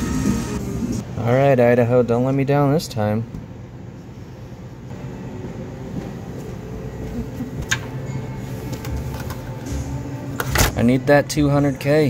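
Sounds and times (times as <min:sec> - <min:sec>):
vending machine running: 0:00.0 - 0:01.0, 0:06.5 - 0:10.9.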